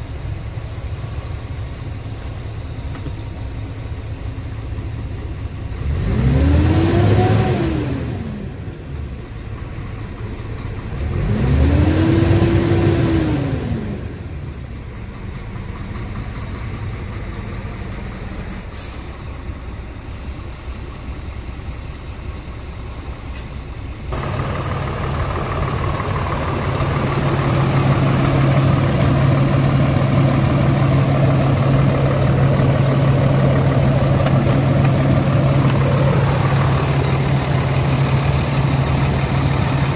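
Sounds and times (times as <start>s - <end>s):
diesel engine idling: 0.0s - 39.9s
diesel engine revving: 0.0s - 39.9s.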